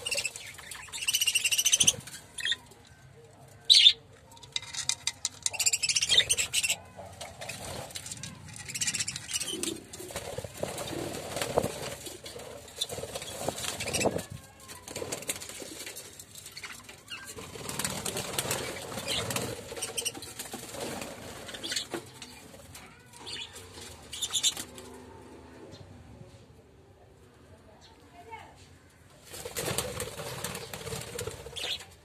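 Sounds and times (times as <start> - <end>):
budgerigars fluttering wings: 8.7 - 14.3, 17.3 - 21.9, 29.3 - 31.8.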